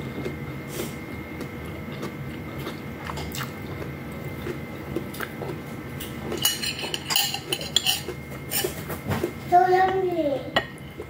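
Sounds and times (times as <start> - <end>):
metal spoon clinking on a plate: 6.4 - 8.8.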